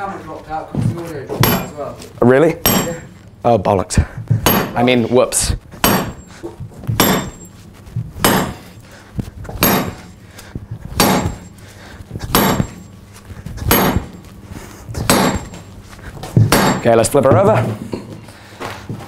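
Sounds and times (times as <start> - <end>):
hammer striking metal with ring: 1.4 - 1.9, 2.6 - 3.1, 4.4 - 4.9, 5.8 - 6.3, 7.0 - 7.5, 8.2 - 8.7, 9.6 - 10.1, 11.0 - 11.6, 12.3 - 12.9, 13.7 - 14.2, 15.1 - 15.6, 16.5 - 16.9.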